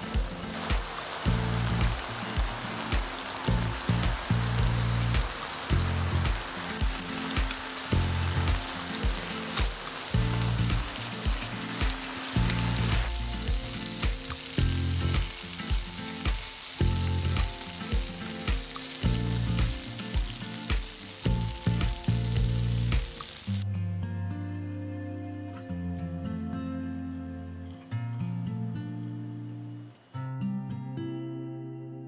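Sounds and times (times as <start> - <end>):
meat sizzling in frying pan: 0.0 - 23.6
soft background music: 0.0 - 32.0.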